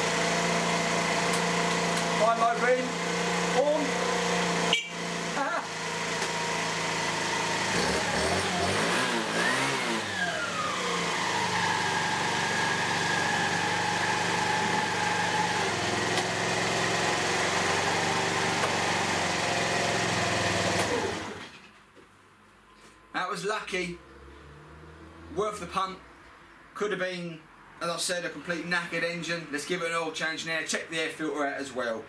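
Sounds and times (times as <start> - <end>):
scooter engine revving and idling: 0.0 - 21.6.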